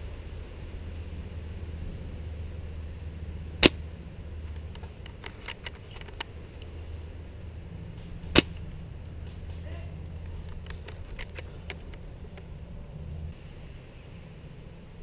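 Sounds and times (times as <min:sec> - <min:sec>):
airsoft rifle shots: 0:03.6 - 0:03.8, 0:08.3 - 0:08.6.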